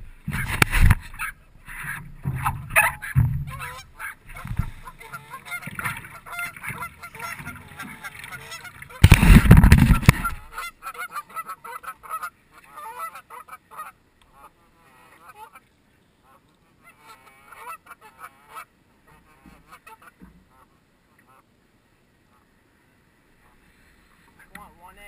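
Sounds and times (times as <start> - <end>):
goose honking: 0.1 - 15.6, 16.3 - 21.5.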